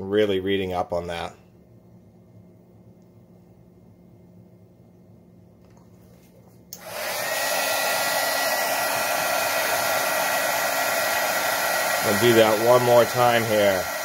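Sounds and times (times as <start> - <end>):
heat gun fan blowing with whine: 6.5 - 14.0.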